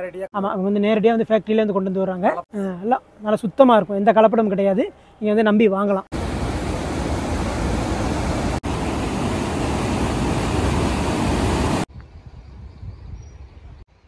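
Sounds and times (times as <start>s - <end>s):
faint outdoor hiss: 0.0s - 11.9s
water gushing down a channel: 6.2s - 11.9s.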